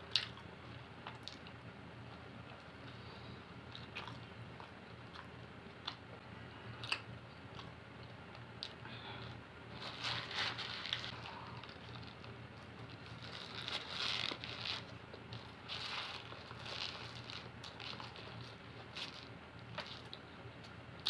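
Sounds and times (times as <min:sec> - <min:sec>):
person chewing food: 0:03.7 - 0:06.2, 0:06.8 - 0:20.3
paper wrapper rustling: 0:09.8 - 0:20.1.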